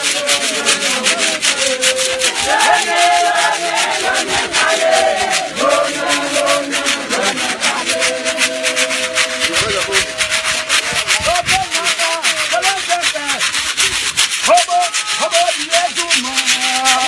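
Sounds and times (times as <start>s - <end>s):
rasping shaken percussion: 0.0s - 17.0s
women's choir singing: 0.1s - 9.5s.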